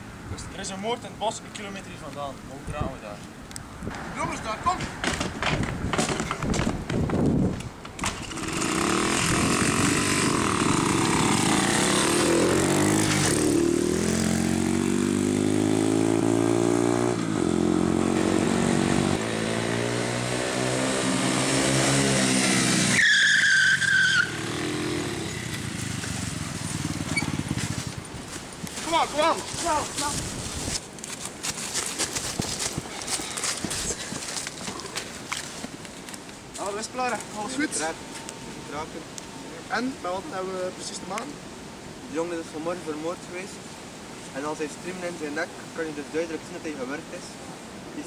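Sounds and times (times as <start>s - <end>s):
mini motorcycle engines revving: 8.0s - 28.0s
high squeal: 22.9s - 24.5s.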